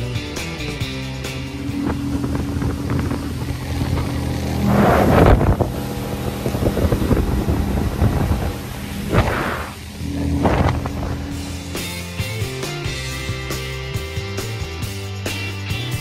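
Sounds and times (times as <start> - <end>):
outboard motor running: 0.0 - 16.0
wind buffeting microphone: 0.6 - 12.5.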